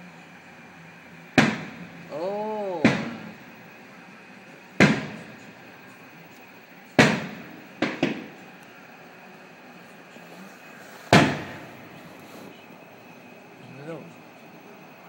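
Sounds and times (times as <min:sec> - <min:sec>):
firework shells booming: 0:01.3 - 0:02.1, 0:02.7 - 0:03.8, 0:04.8 - 0:05.7, 0:06.9 - 0:08.6, 0:10.8 - 0:12.6.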